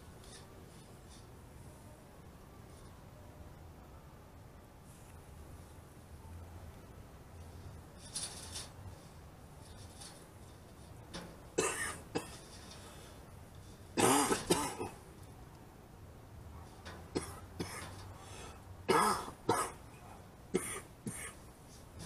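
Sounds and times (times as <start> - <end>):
person coughing: 11.6 - 12.4, 14.0 - 15.0, 18.9 - 19.8, 20.6 - 21.4.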